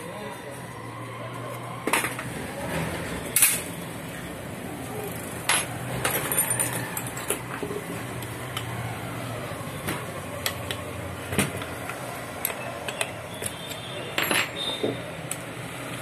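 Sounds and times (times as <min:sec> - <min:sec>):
metallic clinks and knocks: 0:12.4 - 0:15.0.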